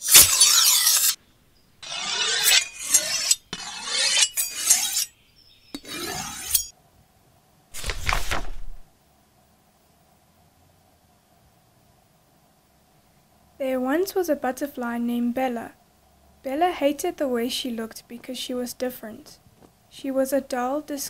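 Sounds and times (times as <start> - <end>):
short rasping scraping noises: 0.0 - 1.2, 1.8 - 5.1, 5.8 - 6.7
notebook pages riffled: 7.8 - 8.8.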